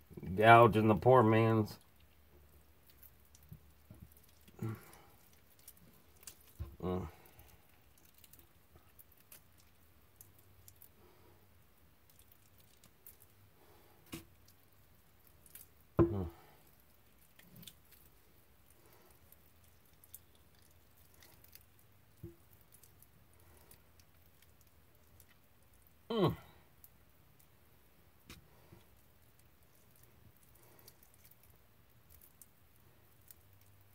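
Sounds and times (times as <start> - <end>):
wet squishes of meat: 1.8 - 26.1, 26.7 - 33.9
grunt-like vocal sound: 6.8 - 7.2, 16.0 - 16.4, 26.1 - 26.6.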